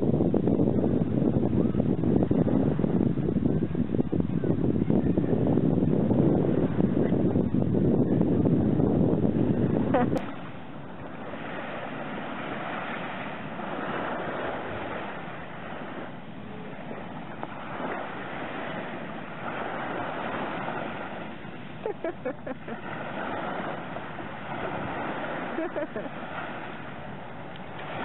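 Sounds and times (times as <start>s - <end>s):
small waves lapping on sand: 8.4s - 28.0s.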